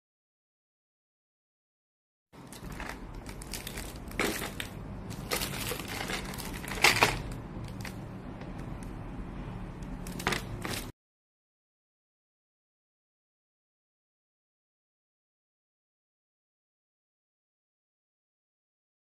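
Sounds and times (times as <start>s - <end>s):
plastic film crinkling: 2.4s - 8.1s, 10.0s - 10.9s.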